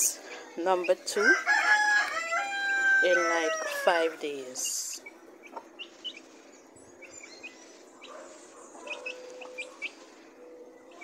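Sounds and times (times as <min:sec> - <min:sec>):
chicks peeping: 0:04.6 - 0:11.0.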